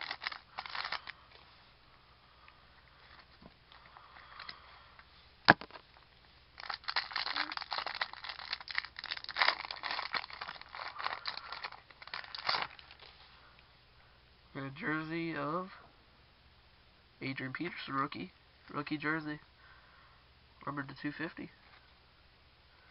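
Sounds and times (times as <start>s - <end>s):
foil wrapper crinkling and tearing: 0.0s - 1.2s, 6.6s - 13.1s.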